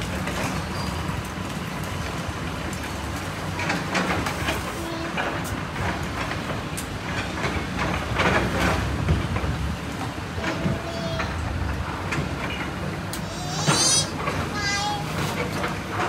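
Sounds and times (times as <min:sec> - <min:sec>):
diesel engine rumble: 0:00.0 - 0:16.0.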